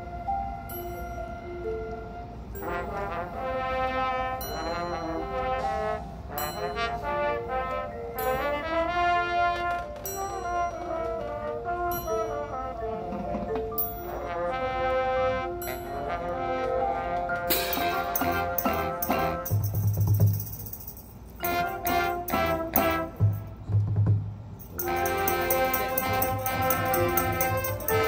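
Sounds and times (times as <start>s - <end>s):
brass horns sustained chords: 2.6s - 13.1s, 14.1s - 19.7s, 21.4s - 23.6s, 24.8s - 28.0s
percussion accented hits: 17.5s - 28.0s.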